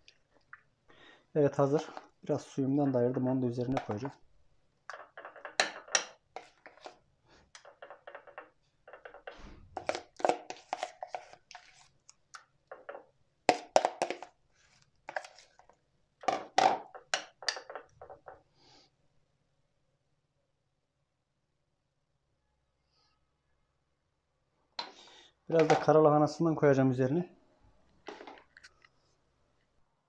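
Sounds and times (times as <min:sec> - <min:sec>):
metal spoon scraping bowl: 0:04.9 - 0:07.0, 0:07.6 - 0:11.9.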